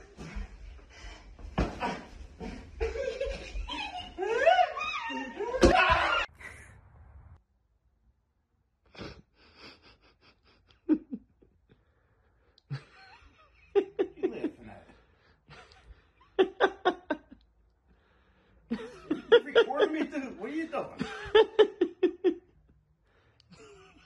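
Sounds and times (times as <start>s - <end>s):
person laughing: 1.8s - 6.7s.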